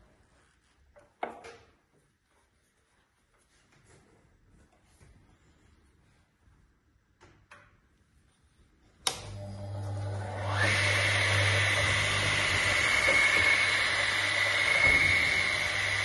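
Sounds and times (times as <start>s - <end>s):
saw switch click: 9.0s - 9.3s
saw motor whining: 9.3s - 16.0s.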